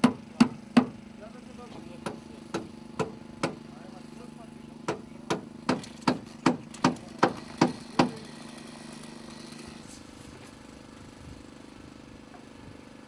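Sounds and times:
hammer striking wood: 0.0 - 1.0, 2.0 - 3.6, 4.9 - 8.2
steady engine hum: 0.0 - 13.0.

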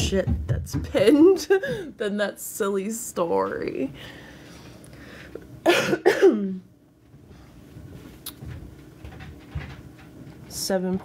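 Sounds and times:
woman coughing: 5.6 - 6.7.

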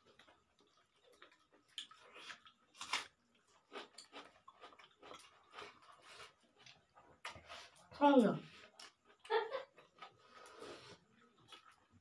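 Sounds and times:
people chewing: 0.0 - 12.0.

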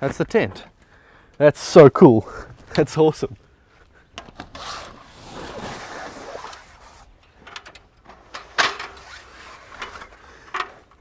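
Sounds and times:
ladder scraping and sliding: 4.4 - 11.0.

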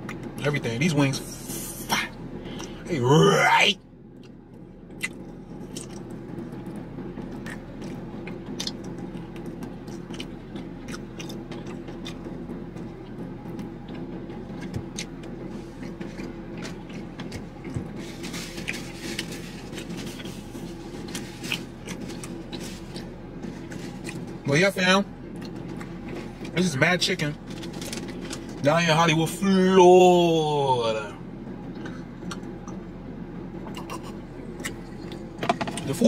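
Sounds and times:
low steady hum: 0.0 - 36.0
chewing with wet mouth clicks: 4.2 - 12.3, 13.0 - 18.0, 18.6 - 24.3, 31.7 - 32.8, 33.6 - 35.9
crackly rustle: 15.6 - 24.4.

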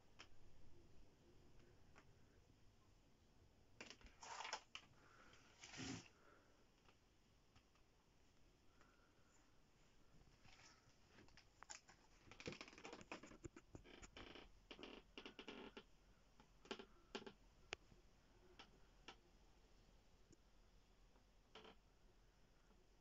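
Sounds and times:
faint clicks and rustles: 3.8 - 19.2.

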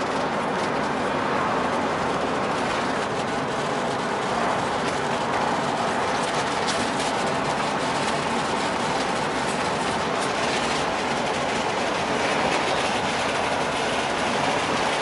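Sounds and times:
road noise inside van: 0.0 - 15.0.

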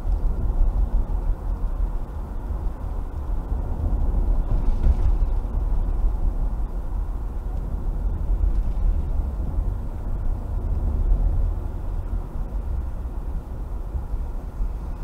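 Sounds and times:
car driving on wet road: 0.0 - 15.0.

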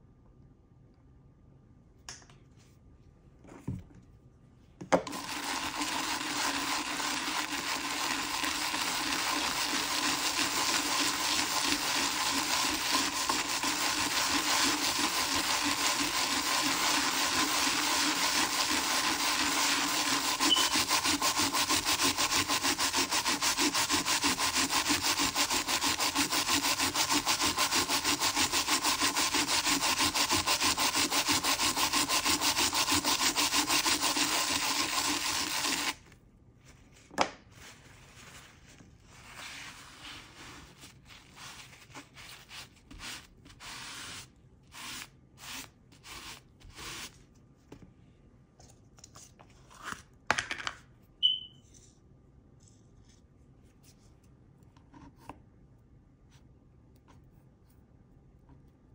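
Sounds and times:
brush scrubbing a coin: 5.4 - 36.0, 37.7 - 47.2.

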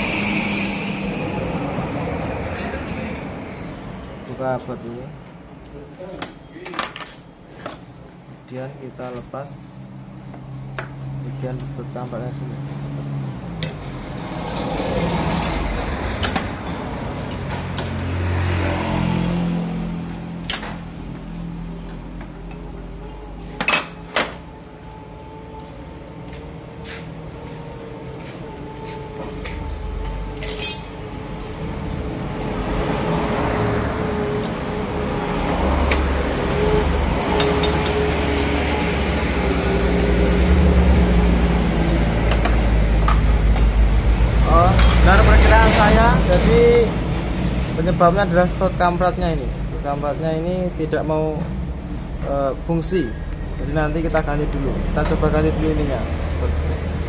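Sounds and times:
wrench clinking on metal: 30.4 - 31.0.

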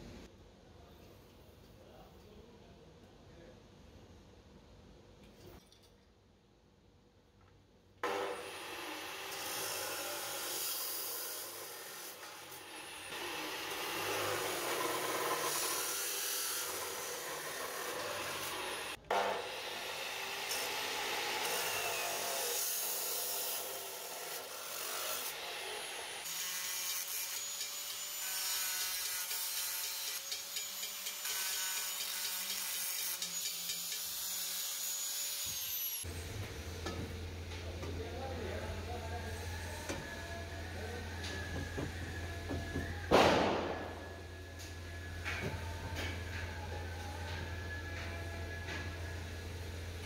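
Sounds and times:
cut-off saw grinding through steel: 8.0 - 36.2.

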